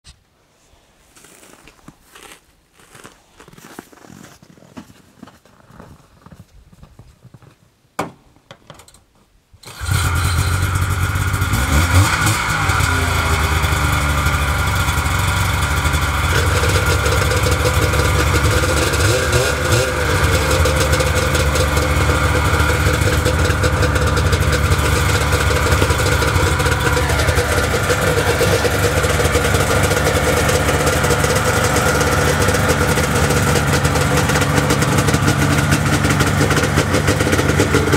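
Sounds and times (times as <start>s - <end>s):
footsteps crunching in snow: 0.5s - 7.7s
snowmobile engine starting and idling: 9.6s - 37.9s.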